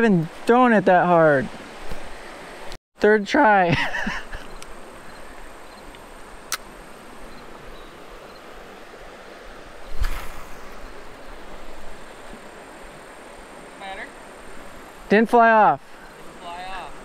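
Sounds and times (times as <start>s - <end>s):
faint hiss: 4.0s - 17.0s.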